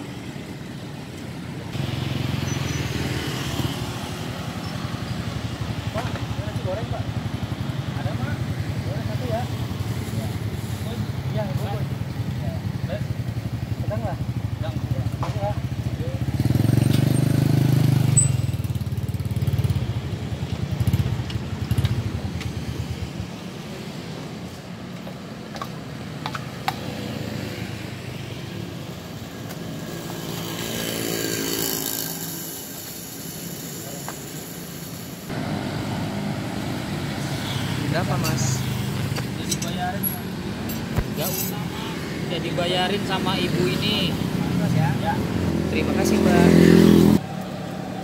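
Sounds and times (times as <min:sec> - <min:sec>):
road traffic: 0:00.0 - 0:48.0
motorcycle engine pulling away: 0:15.0 - 0:20.0, 0:29.8 - 0:39.2.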